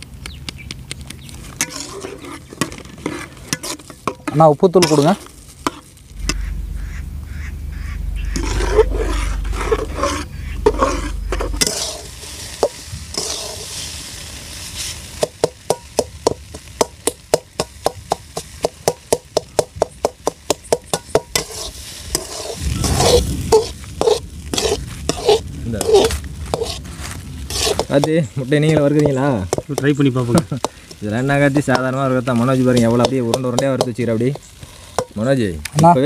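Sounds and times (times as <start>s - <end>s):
frying sizzle: 0.4s - 36.0s
metal spatula scraping pan: 1.6s - 14.0s, 20.2s - 28.1s
low rumble: 5.2s - 13.2s, 21.8s - 27.5s.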